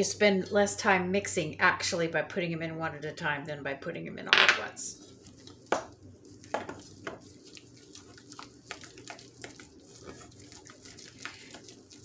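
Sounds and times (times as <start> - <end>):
utensil scraping steel bowl: 6.4 - 11.7.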